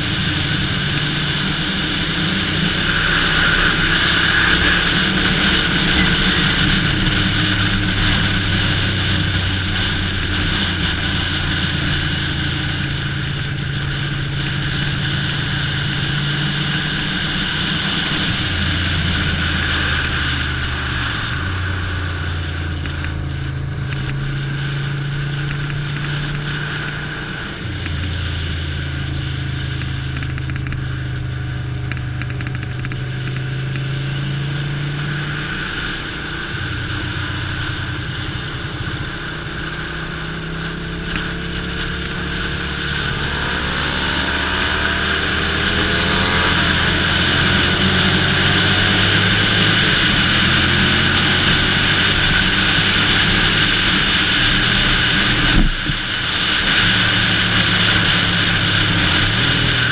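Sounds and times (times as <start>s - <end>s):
motorcycle engine running: 0.0s - 59.9s
wind rush on helmet: 49.0s - 59.9s.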